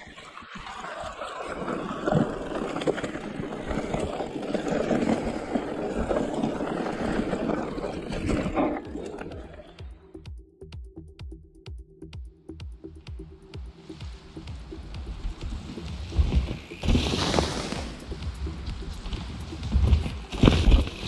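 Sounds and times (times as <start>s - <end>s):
tyres rolling over earth and leaves: 0.0s - 9.9s, 14.0s - 21.0s
bike knocking and rattling: 14.3s - 21.0s.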